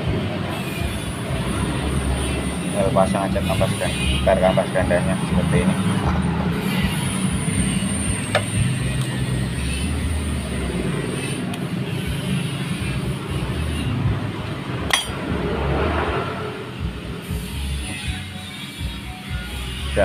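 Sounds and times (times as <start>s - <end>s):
low workshop drone: 0.0s - 20.0s.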